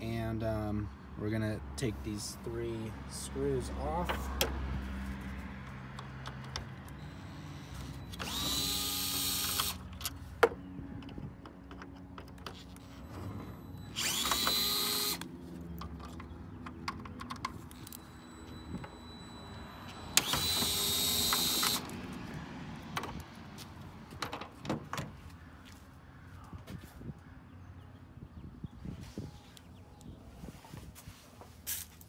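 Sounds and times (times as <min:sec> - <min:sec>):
electric screwdriver whining: 0:07.0 - 0:09.8, 0:13.8 - 0:15.3, 0:19.8 - 0:22.0.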